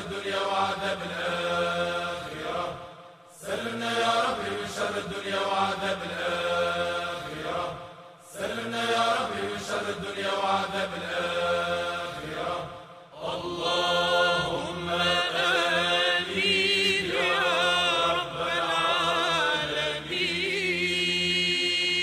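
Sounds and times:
man chanting: 13.2s - 22.0s.

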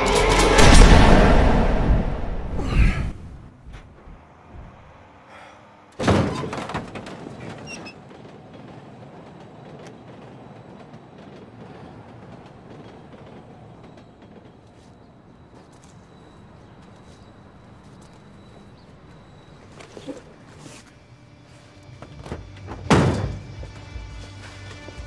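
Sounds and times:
quiet street ambience: 0.0s - 25.0s
van door banging open: 22.2s - 23.6s.

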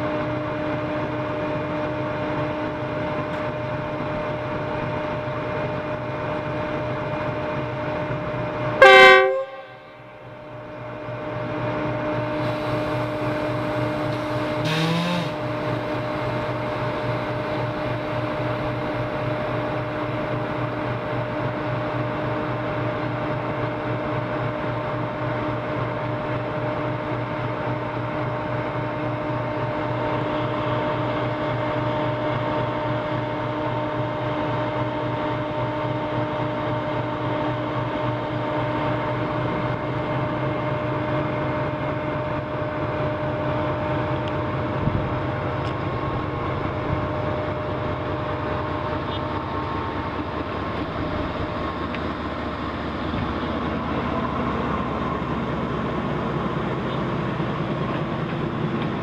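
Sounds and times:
locomotive engine idling: 0.0s - 59.0s
loud horn blast: 8.8s - 10.2s, 14.6s - 15.5s.

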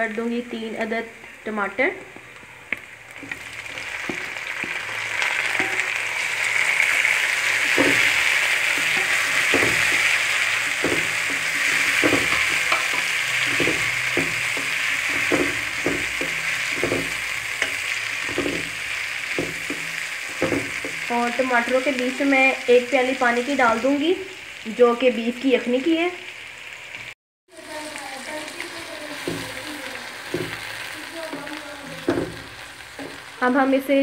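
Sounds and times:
tomatoes sizzling in hot oil: 0.0s - 34.0s
spatula scraping pan: 3.2s - 22.0s, 28.5s - 33.4s.

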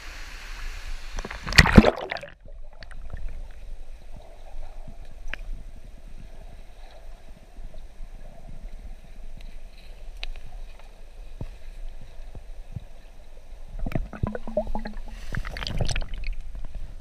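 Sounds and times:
water sloshing and splashing: 1.2s - 3.5s, 13.8s - 16.6s
faint underwater clicks and knocks: 13.8s - 16.8s.

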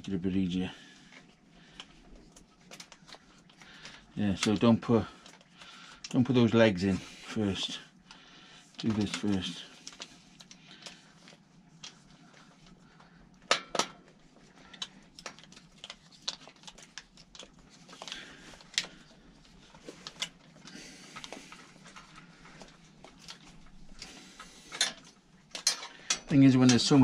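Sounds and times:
metal parts clicking and clinking: 24.0s - 27.0s.

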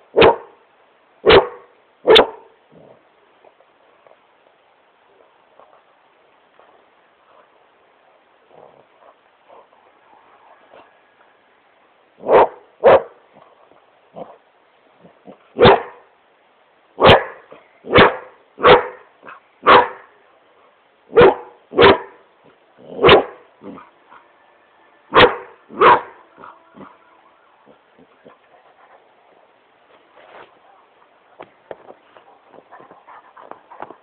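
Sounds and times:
puppy barking: 0.2s - 0.5s, 1.2s - 2.5s, 12.2s - 13.2s, 15.6s - 16.0s, 17.0s - 20.1s, 21.1s - 22.2s, 22.9s - 24.3s, 25.1s - 27.1s.

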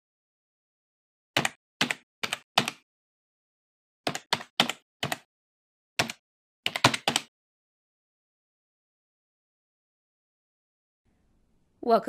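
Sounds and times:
keyboard key clicks: 6.0s - 7.3s.

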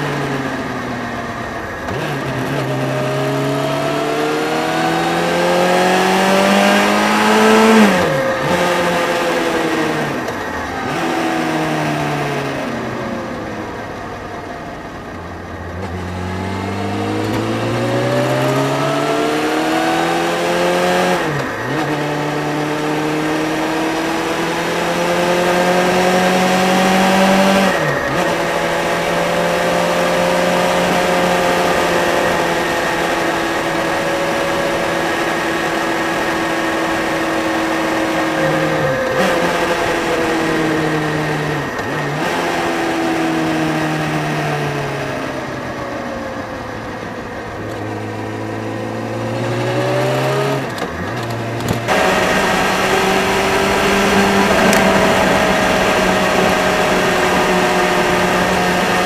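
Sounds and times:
motorcycle engine shifting gears: 0.0s - 59.0s
wind rush: 51.7s - 59.0s.

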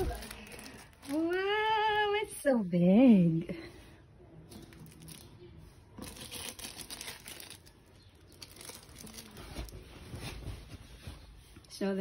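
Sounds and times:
plastic packaging crinkling: 0.0s - 1.8s, 4.6s - 10.8s.

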